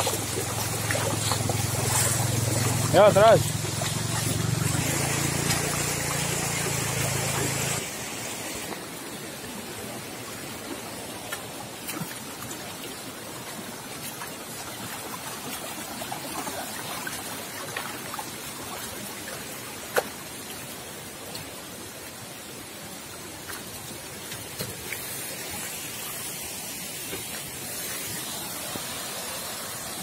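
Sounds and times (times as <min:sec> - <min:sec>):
water rushing over rocks: 0:00.0 - 0:30.0.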